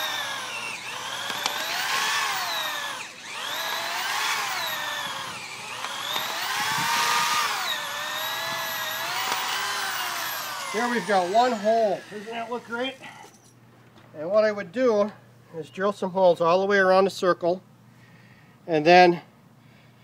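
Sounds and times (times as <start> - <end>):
electric drill boring into wood: 0.0 - 13.2.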